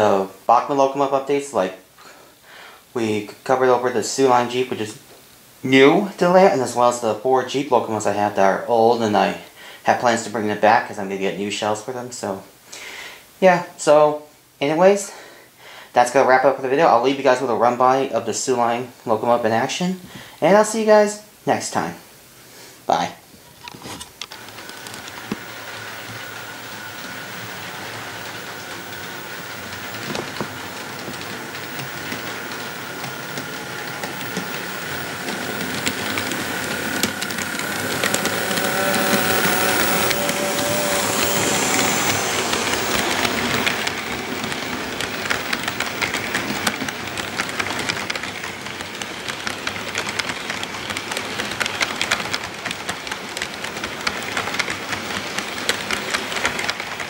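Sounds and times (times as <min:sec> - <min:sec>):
wheels clicking over track joints: 0:23.5 - 0:57.0
model locomotive motor whining: 0:23.6 - 0:57.0.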